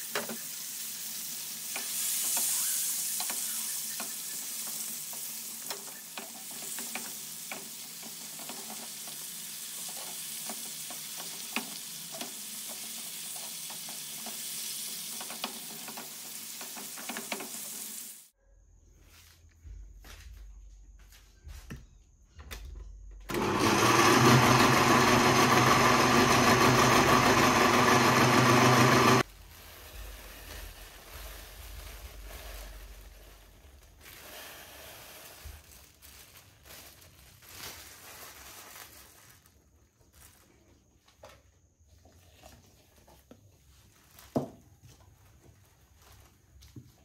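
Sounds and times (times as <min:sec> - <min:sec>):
electric blender running: 0:23.3 - 0:29.3.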